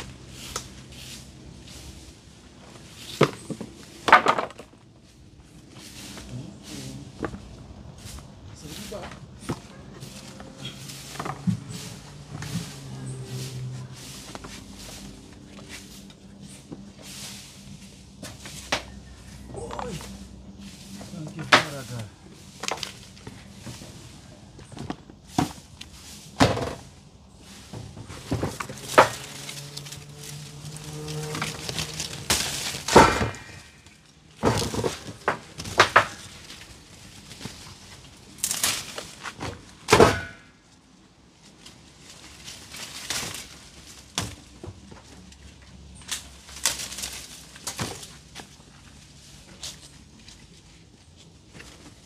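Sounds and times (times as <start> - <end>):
branches knocking and snapping: 21.4 - 23.8, 28.0 - 40.6, 41.4 - 49.9.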